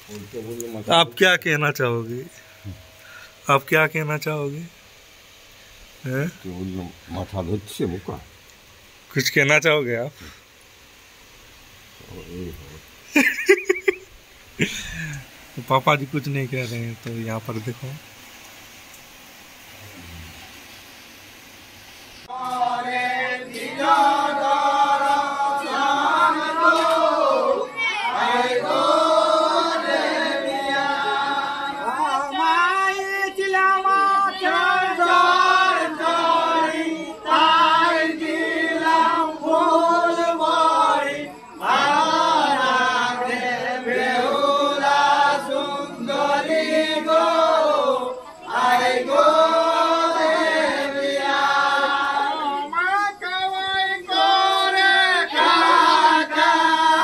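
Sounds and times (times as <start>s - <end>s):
voices singing devotional chant: 13.2s - 18.7s, 22.2s - 57.0s.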